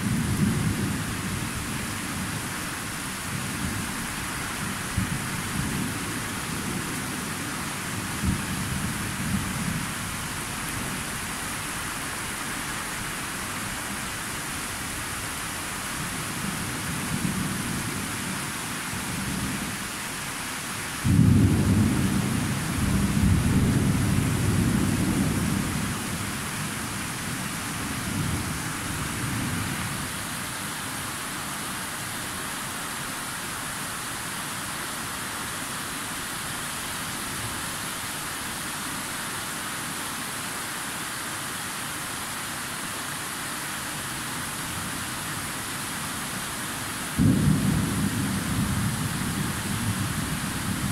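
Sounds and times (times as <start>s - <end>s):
loud thunder clap: 47.2s - 48.4s
thunder rumbling: 47.2s - 50.9s.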